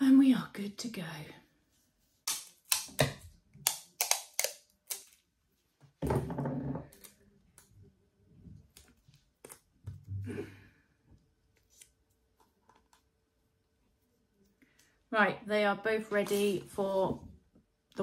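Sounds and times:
tape pulled and torn: 2.2 - 5.2.

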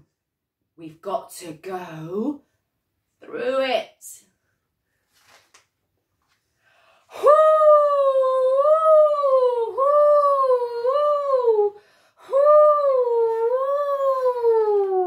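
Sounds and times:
woman imitating howling wind: 7.1 - 15.0.

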